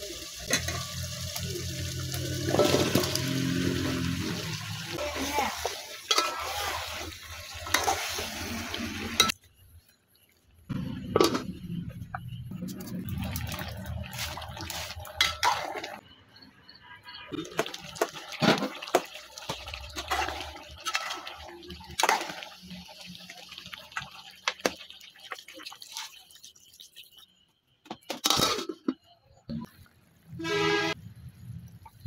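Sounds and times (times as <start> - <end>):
spoon clinking and scraping pot: 5.4 - 7.0, 7.6 - 8.3, 14.7 - 16.0.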